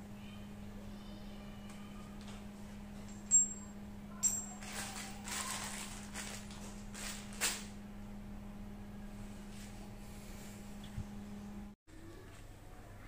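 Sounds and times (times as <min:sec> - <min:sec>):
steady low hum: 0:00.0 - 0:13.0
metal fittings clinking on tiles: 0:03.1 - 0:05.2
plastic bag of bolts rattling: 0:04.3 - 0:07.7.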